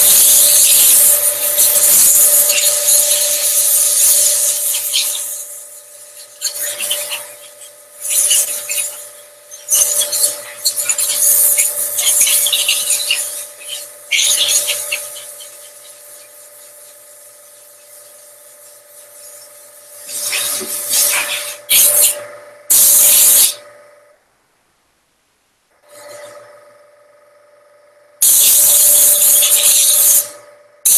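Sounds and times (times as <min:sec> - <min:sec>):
loud burst of hiss: 0:00.0 - 0:06.2, 0:19.9 - 0:23.6, 0:28.2 - 0:30.2.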